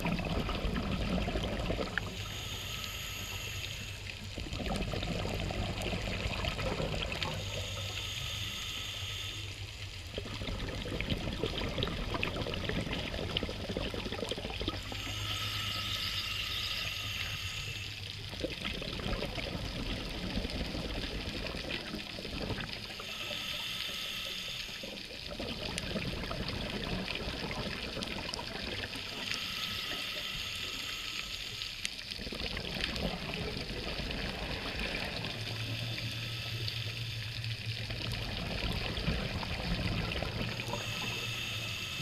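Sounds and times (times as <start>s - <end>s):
bubbling exhaust underwater: 0.0s - 42.0s
regulator hissing inhale: 2.0s - 4.4s, 7.1s - 9.8s, 14.8s - 18.3s, 22.8s - 25.1s, 29.0s - 32.0s, 35.4s - 37.6s, 40.5s - 42.0s.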